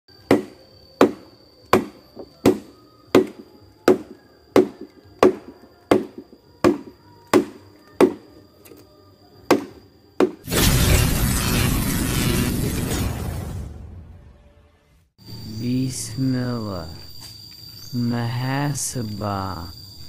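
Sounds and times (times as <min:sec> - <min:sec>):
machete chopping bamboo: 0:00.3 - 0:08.3, 0:09.5 - 0:10.4.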